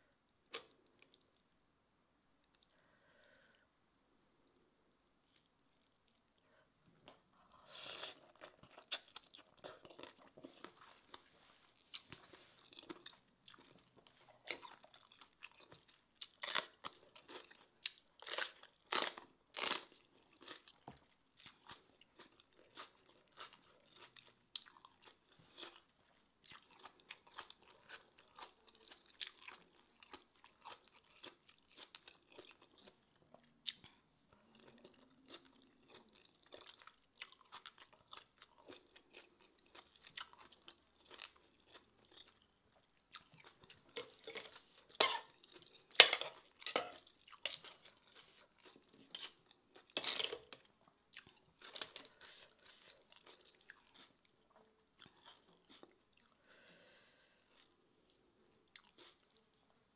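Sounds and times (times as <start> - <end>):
soft wet chewing: 0.4 - 1.6, 2.4 - 3.7, 5.1 - 59.9
person crunching crisp bites: 11.8 - 20.8.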